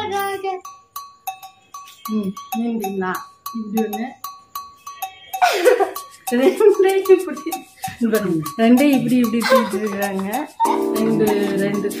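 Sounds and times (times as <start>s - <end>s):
cowbell-like percussion beat: 0.0s - 12.0s
person speaking: 8.8s - 12.0s.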